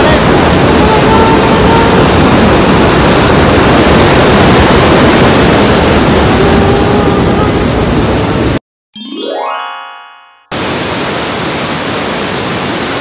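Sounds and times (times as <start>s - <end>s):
waterfall rushing: 0.0s - 8.6s, 10.5s - 13.0s
faint voice: 6.3s - 7.8s.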